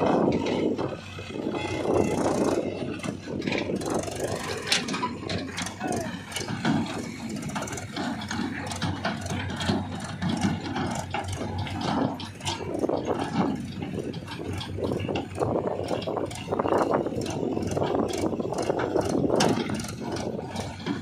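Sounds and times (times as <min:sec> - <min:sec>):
tractor diesel engine running: 0:00.0 - 0:21.0
trailer rattling and clanking: 0:00.0 - 0:21.0.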